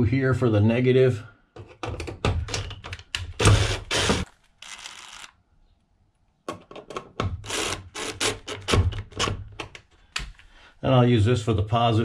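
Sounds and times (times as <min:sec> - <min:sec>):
drill clicks: 0:02.5 - 0:05.4, 0:07.3 - 0:09.7
cordless drill running: 0:03.4 - 0:05.3, 0:07.5 - 0:08.5.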